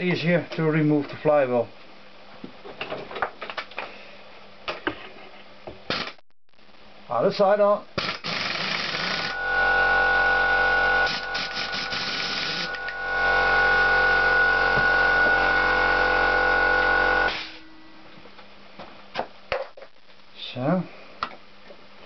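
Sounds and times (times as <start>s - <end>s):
pneumatic impact wrench running: 8.0s - 17.6s.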